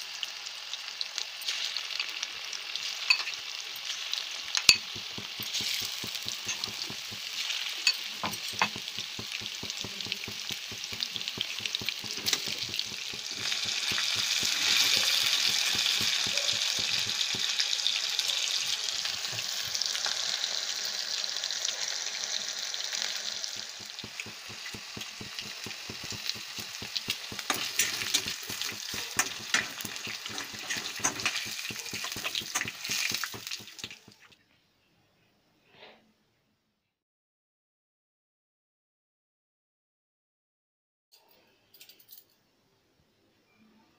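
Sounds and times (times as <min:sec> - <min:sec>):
food deep-frying in oil: 0:00.0 - 0:34.4.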